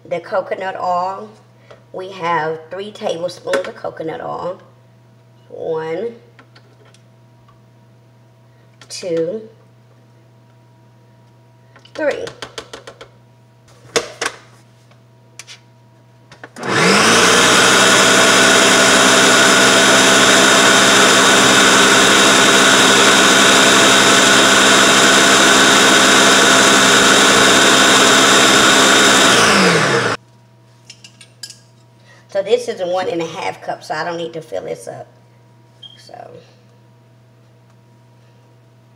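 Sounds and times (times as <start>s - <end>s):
food processor motor running: 16.5s - 30.2s.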